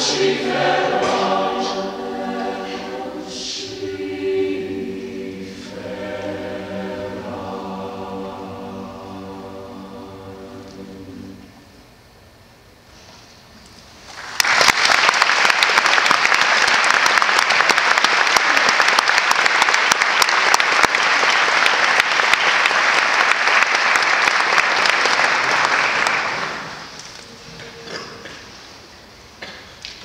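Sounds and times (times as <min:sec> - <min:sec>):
audience applauding: 0:14.2 - 0:27.0.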